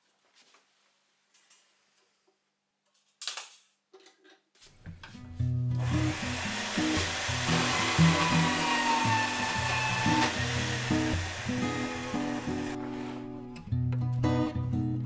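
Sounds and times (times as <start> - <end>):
bandsaw motor running: 5.7 - 13.3.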